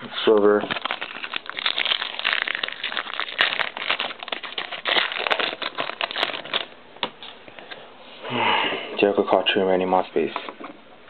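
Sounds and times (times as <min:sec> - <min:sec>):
foil wrapper crinkling: 0:00.2 - 0:06.8.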